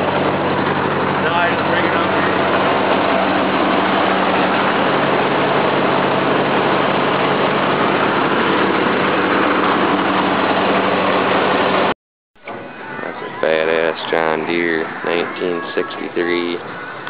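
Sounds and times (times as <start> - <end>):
tractor engine idling: 0.0 - 11.9.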